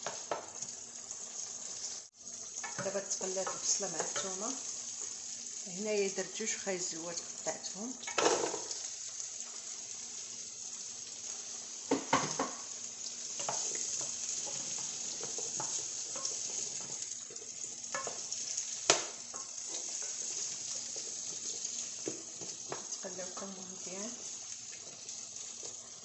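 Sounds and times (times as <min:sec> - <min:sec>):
vegetables sizzling in frying pan: 0:00.0 - 0:26.0.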